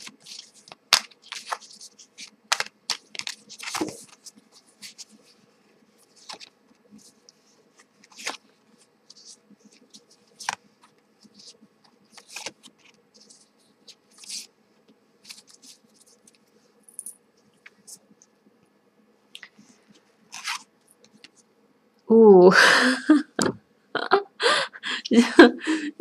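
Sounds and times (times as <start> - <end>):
tarot cards sliding and rustling: 0.0 - 16.8, 19.4 - 21.5.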